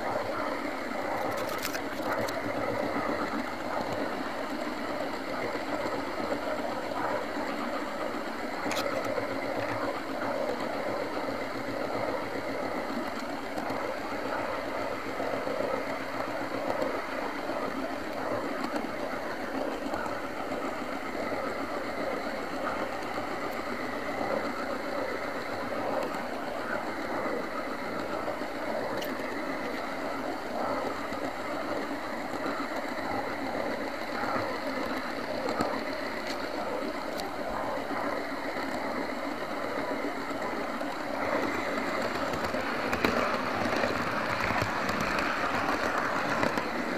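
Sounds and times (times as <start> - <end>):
wheels rattling on rails: 0.0 - 46.9
faint ticks: 30.6 - 46.9.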